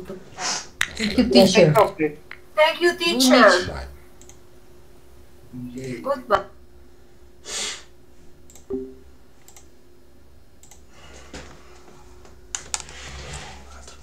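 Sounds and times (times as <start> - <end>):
faint steady hum: 0.0 - 14.0
computer mouse and key clicks: 4.2 - 4.4, 8.5 - 8.7, 9.4 - 9.7, 10.6 - 10.9, 12.5 - 13.0.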